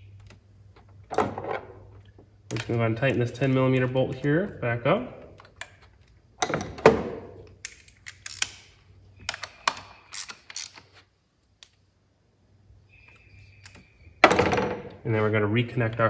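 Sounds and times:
socket ratchet clicking: 0:07.6 - 0:10.8.

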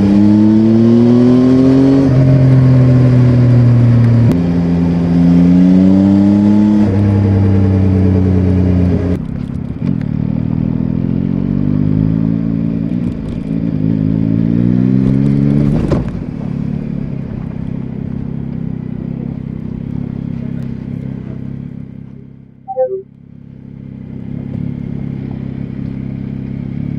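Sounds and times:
motorcycle engine revving: 0:00.0 - 0:09.2
short falling beep: 0:22.7 - 0:23.0.

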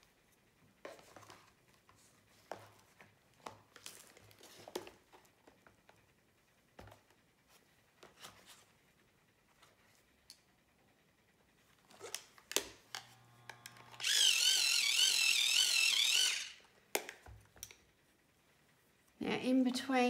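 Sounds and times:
coloured pencils clicking together: 0:12.0 - 0:17.9.

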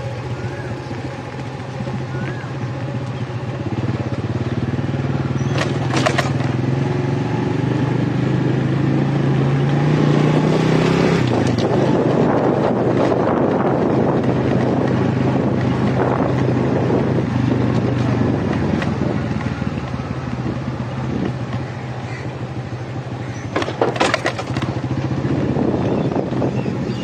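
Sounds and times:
motorcycle engine running: 0:00.0 - 0:27.0
sharp rattling knocks: 0:05.4 - 0:06.6, 0:23.4 - 0:24.8.

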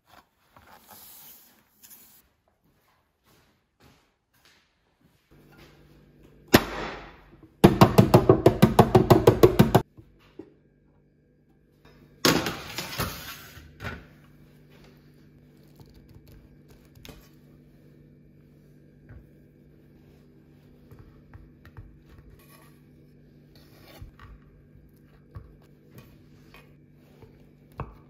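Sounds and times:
pan banging on wooden board: 0:07.6 - 0:09.8.

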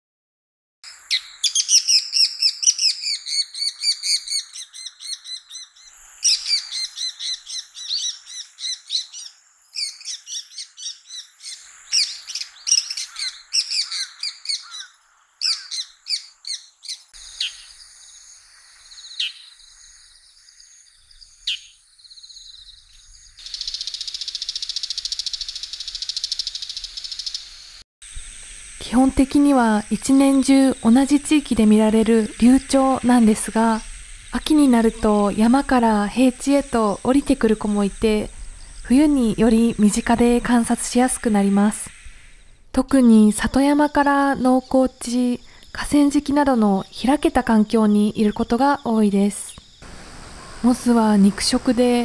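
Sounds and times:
steady high hiss: 0:00.9 - 0:15.4, 0:16.8 - 0:20.3, 0:23.0 - 0:52.0
shrike chattering calls: 0:00.9 - 0:17.7, 0:49.8 - 0:52.0.

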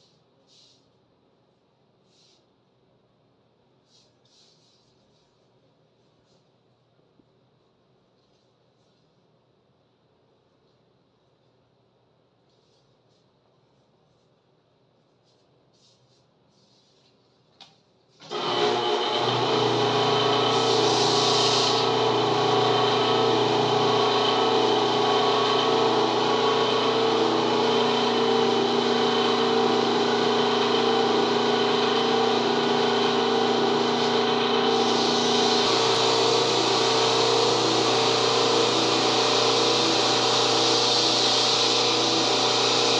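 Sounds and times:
lathe motor whining: 0:18.2 - 0:42.9
sandpaper hissing on spinning wood: 0:19.6 - 0:42.9.

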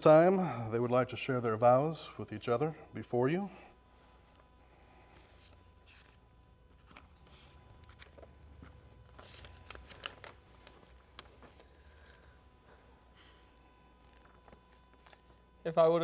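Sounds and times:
low room hum: 0:00.0 - 0:16.0
paper rustling: 0:05.1 - 0:12.3.

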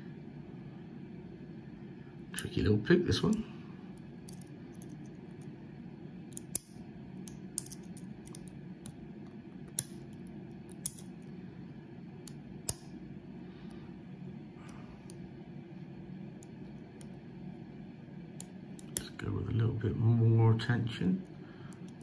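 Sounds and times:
lock pick clicking in padlock: 0:06.3 - 0:08.5, 0:10.7 - 0:11.1.

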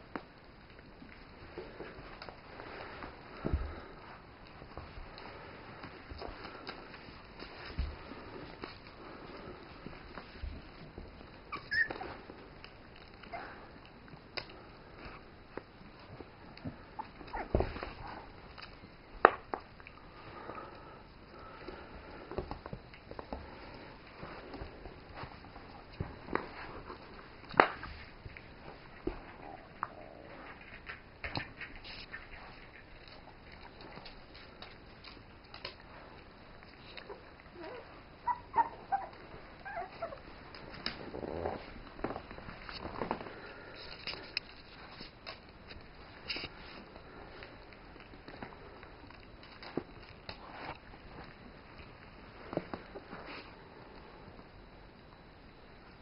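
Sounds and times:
dogs scuffling on a rug: 0:00.7 - 0:54.2
puppies squeaking and yipping: 0:11.5 - 0:12.2, 0:37.6 - 0:40.2.

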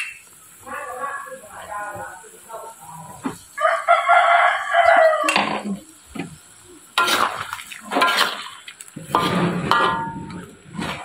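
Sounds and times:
rooster crowing: 0:03.6 - 0:05.5
metal ladle scraping a wok: 0:07.0 - 0:11.0.

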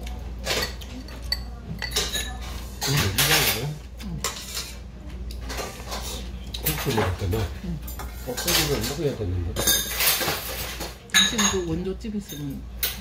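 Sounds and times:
cutlery clinking on plates: 0:00.4 - 0:04.8, 0:05.4 - 0:13.0.

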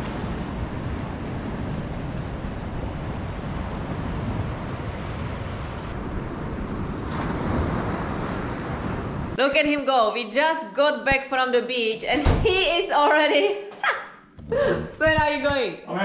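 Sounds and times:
ocean surf breaking: 0:00.0 - 0:09.4
wind rumbling on microphone: 0:00.0 - 0:09.4.

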